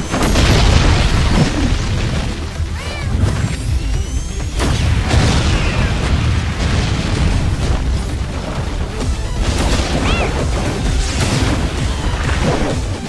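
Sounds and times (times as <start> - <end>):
booms and explosions: 0.0 - 13.0
deep rumble: 0.0 - 13.0
loud music: 7.4 - 13.0.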